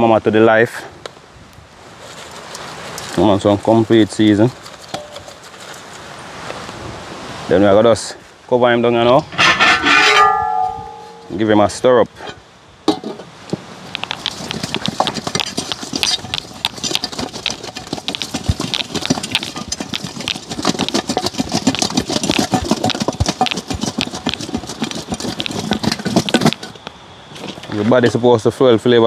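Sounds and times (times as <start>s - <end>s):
fish rattling in shaken container: 4.0s - 6.2s, 13.9s - 26.8s.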